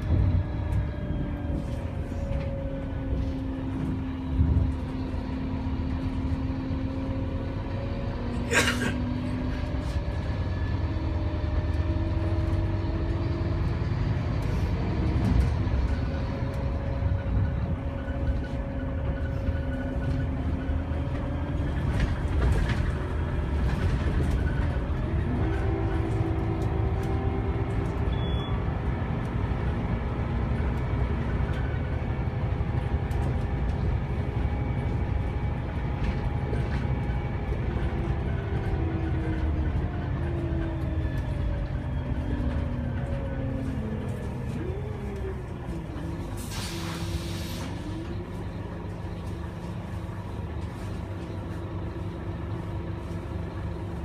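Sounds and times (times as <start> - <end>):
bus diesel engine: 0.0 - 54.0
bus body rattles and knocks: 14.8 - 28.0, 28.6 - 43.5.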